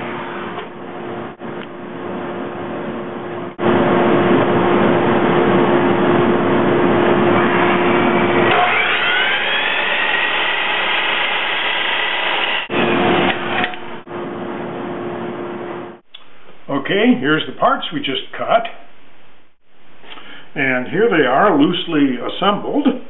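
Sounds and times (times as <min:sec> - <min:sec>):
miter saw motor whine: 0:07.2 - 0:13.8
saw blade cutting wood: 0:08.4 - 0:12.7.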